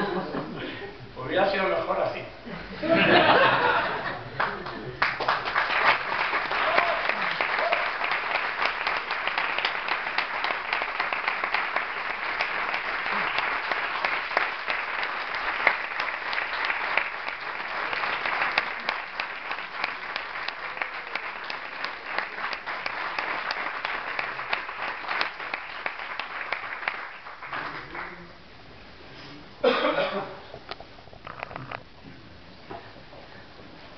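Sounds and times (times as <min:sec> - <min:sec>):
audience applauding: 0:03.2 - 0:28.4.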